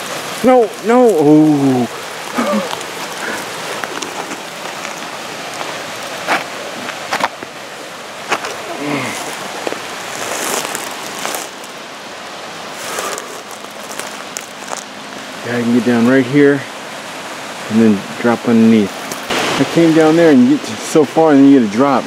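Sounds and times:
rushing creek water: 0.0 - 22.0.

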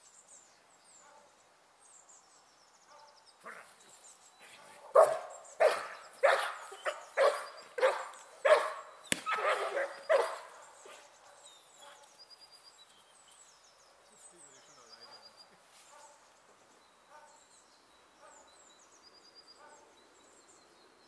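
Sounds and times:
faint bird chirps: 0.0 - 21.0
dog barking: 4.9 - 11.0, 19.6 - 19.8
sharp crack: 9.1 - 9.4.

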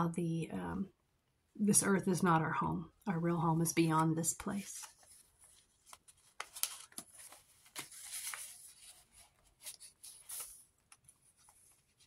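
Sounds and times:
paper rustling and crinkling: 4.6 - 12.0.

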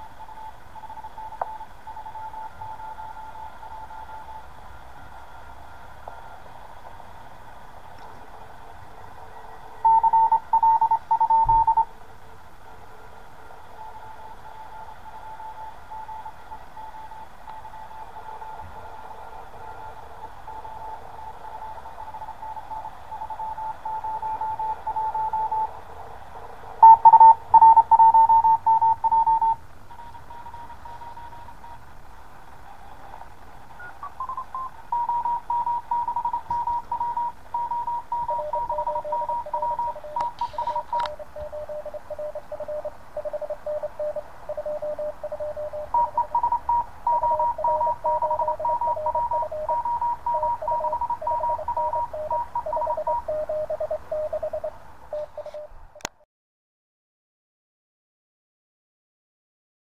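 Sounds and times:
morse code beeping tones: 0.0 - 4.5, 9.8 - 11.9, 13.8 - 25.7, 26.8 - 31.8, 33.7 - 55.8
lower-pitched morse signal: 0.0 - 6.4, 8.9 - 11.9, 13.4 - 25.8, 26.8 - 31.9, 32.6 - 55.8
static hiss: 0.0 - 55.9.

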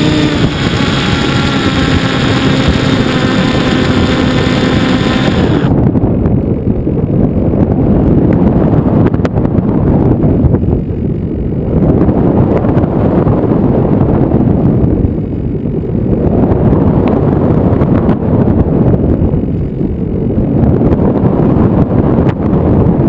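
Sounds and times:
thin high whine: 0.0 - 5.8
wind rushing over microphone: 0.0 - 23.0.

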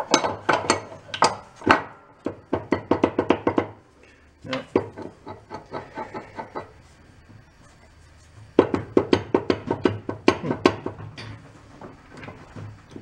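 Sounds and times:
crankshaft clunking knocks: 4.5 - 7.4, 8.4 - 13.0.

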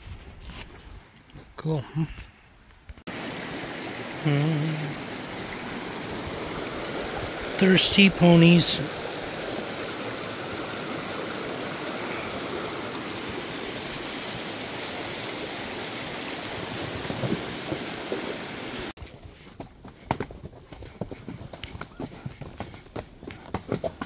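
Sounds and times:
creek water rushing over rocks: 3.1 - 19.0.

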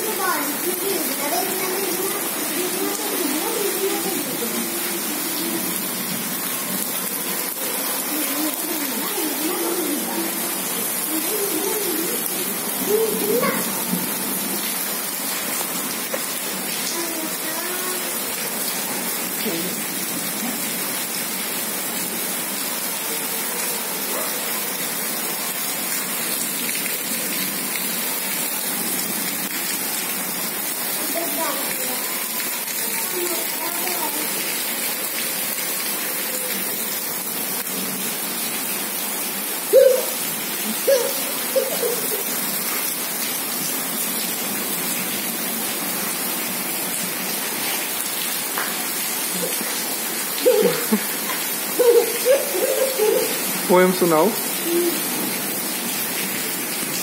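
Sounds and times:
heavy rain falling: 0.0 - 57.0
faint voice: 50.4 - 51.0.

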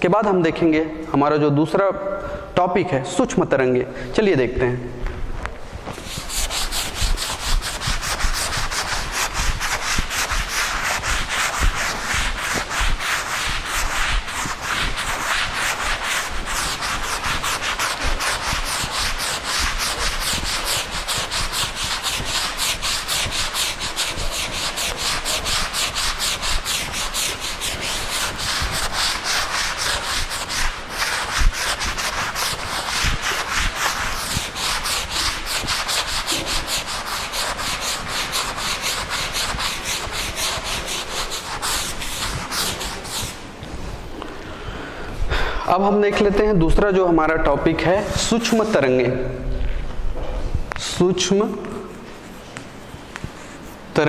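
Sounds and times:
eraser scrubbing a chalkboard: 5.9 - 43.7, 47.7 - 49.0, 50.8 - 54.0.

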